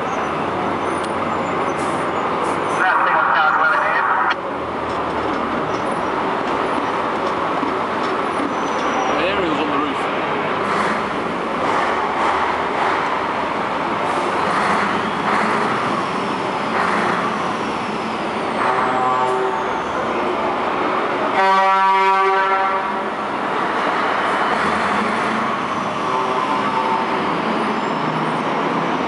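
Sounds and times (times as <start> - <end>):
truck engines running in a tunnel: 0.0 - 29.0
loud truck horn blast: 18.6 - 19.8, 21.3 - 23.1.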